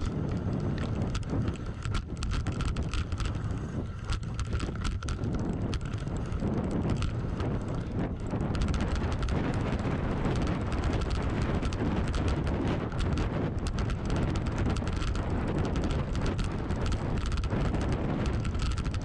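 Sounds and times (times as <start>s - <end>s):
bike clicks and rattles: 0.0s - 19.0s
wind buffeting microphone: 0.0s - 19.0s.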